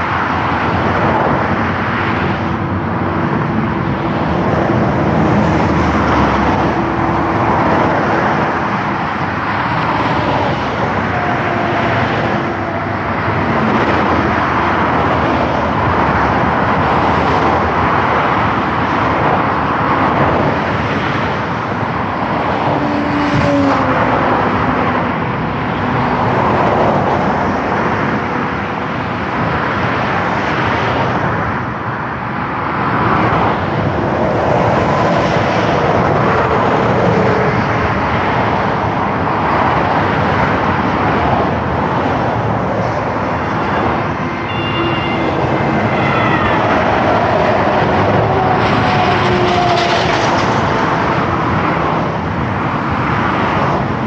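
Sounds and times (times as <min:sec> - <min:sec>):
highway traffic passing at speed: 0:00.0 - 0:54.0.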